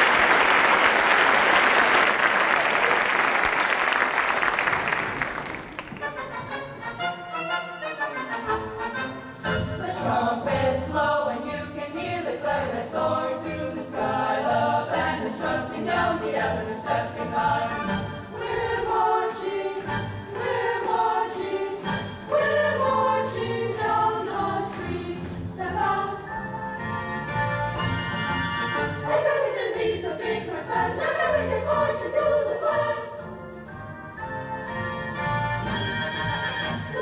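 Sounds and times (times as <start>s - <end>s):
boys' chorus singing: 9.8s - 17.8s, 20.4s - 26.1s.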